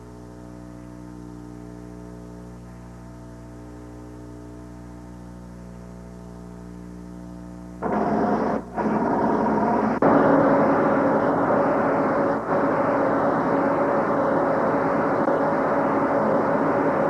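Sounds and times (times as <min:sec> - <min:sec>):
loud engine drone: 0:07.8 - 0:17.0
rushing noise: 0:07.8 - 0:17.0.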